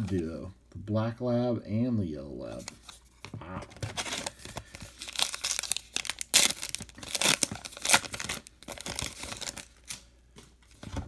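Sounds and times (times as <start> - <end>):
wrapper tearing and crinkling: 3.8 - 10.0.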